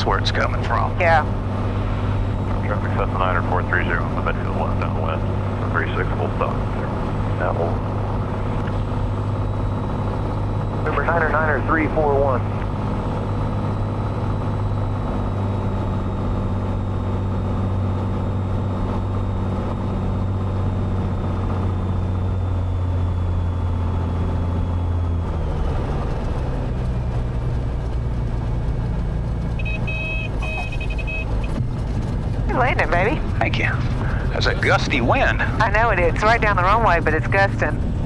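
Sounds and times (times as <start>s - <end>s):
propeller plane engine drone: 0.0s - 38.0s
high-pitched beeping: 29.6s - 31.6s.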